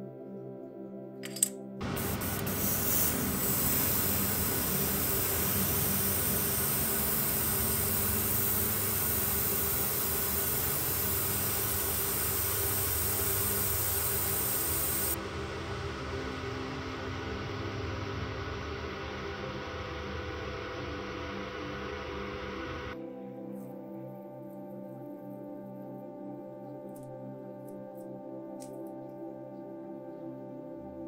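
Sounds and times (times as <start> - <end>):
airbrush spraying hiss: 1.8 - 15.2
extractor fan hum: 1.8 - 23.0.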